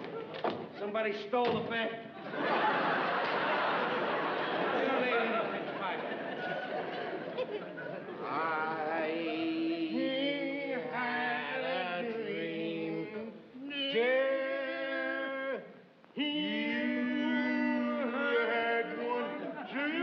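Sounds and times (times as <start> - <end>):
two men singing held notes: 8.0 - 20.0.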